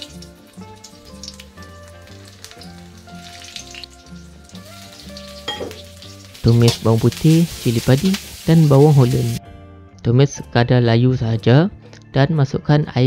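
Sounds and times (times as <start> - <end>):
food sizzling in hot oil: 0.0 - 9.4
background music with bass line: 0.0 - 13.0.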